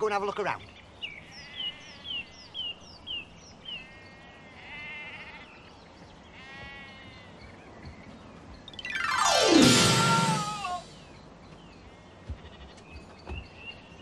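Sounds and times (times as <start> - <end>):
sheep bleating: 4.0 - 5.5, 6.4 - 7.3.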